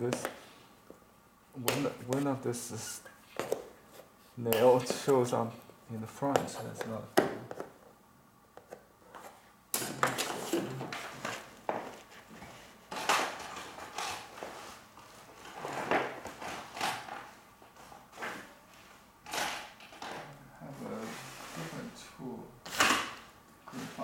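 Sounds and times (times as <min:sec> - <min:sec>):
rustling and clattering of tools: 0:08.7 - 0:21.7.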